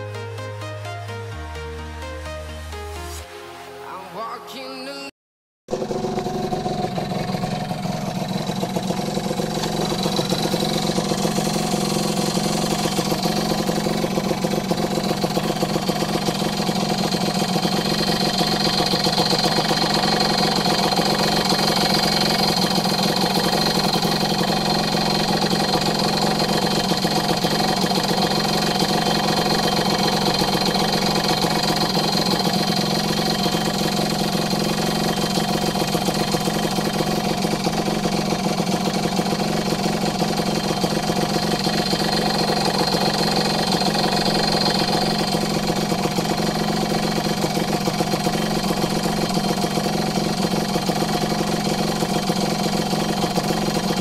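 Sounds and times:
two-stroke engine idling: 0:05.7 - 0:54.0.

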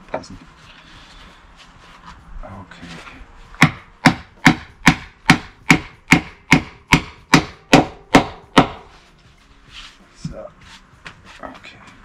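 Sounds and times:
sharp wooden knocks: 0:03.6 - 0:08.9.

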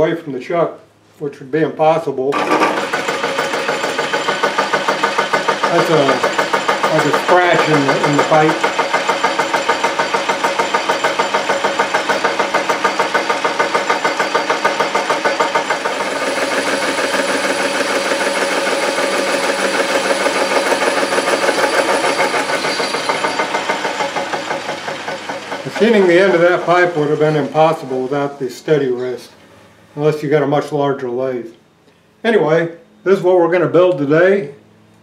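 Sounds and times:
tool bit cutting metal pipe: 0:02.4 - 0:28.0
metal lathe running: 0:02.4 - 0:28.8.

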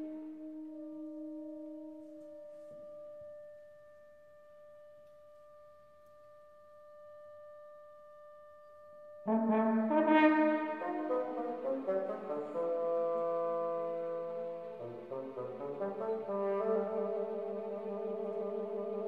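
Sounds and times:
orchestra brass chord: 0:09.3 - 0:19.0.

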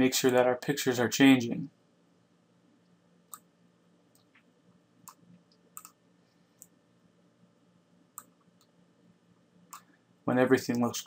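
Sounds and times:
faint computer mouse clicks: 0:05.8 - 0:06.0.

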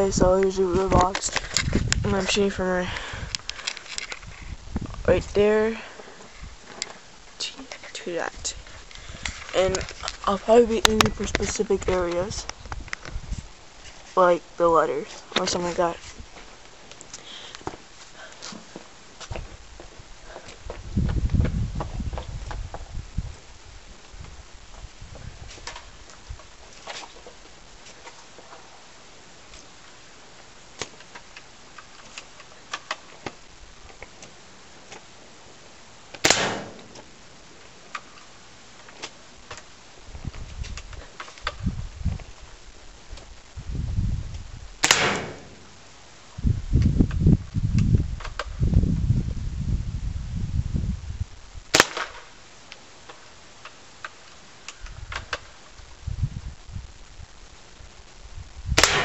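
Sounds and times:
wind rumble on microphone: 0:00.0 - 0:06.7, 0:08.2 - 0:13.9, 0:19.2 - 0:26.7, 0:40.0 - 0:45.6, 0:46.3 - 0:51.8, 0:54.8 - 0:59.0
airsoft rifle shot crack: 0:36.2 - 0:37.0, 0:44.8 - 0:45.6, 0:51.7 - 0:52.3, 0:58.8 - 0:59.0.

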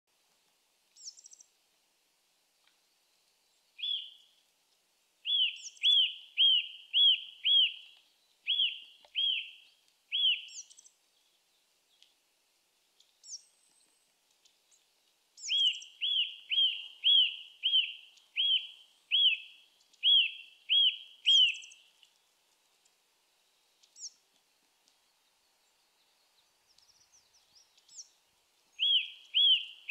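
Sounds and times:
short high bird calls: 0:03.8 - 0:04.3, 0:05.2 - 0:10.9, 0:15.4 - 0:21.9, 0:28.8 - 0:29.9.

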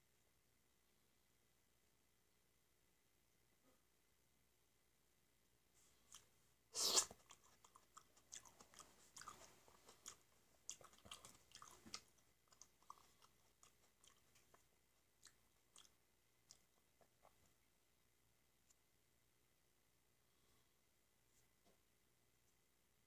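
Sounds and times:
chewing with mouth clicks: 0:06.1 - 0:17.6.

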